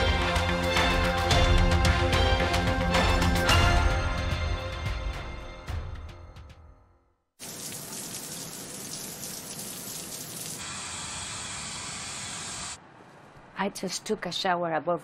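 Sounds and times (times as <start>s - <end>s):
theme music: 0.0s - 6.6s
shower water spraying: 7.4s - 12.8s
hair dryer hissing: 10.5s - 12.8s.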